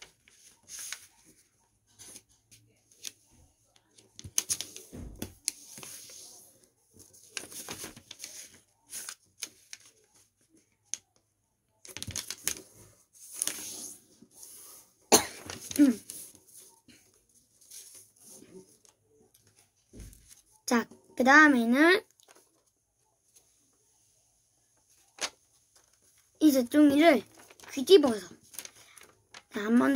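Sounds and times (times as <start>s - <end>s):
paper rustling and scraping: 0.0s - 3.2s, 4.2s - 10.3s, 11.9s - 16.7s, 24.8s - 29.9s.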